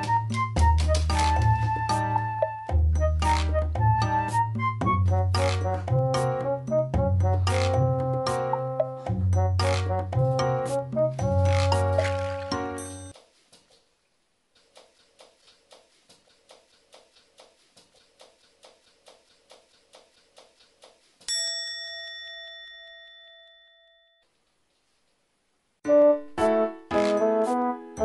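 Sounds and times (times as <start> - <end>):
keyboard music: 0.0 - 13.0, 25.8 - 28.0
soft even ticking: 14.5 - 21.5.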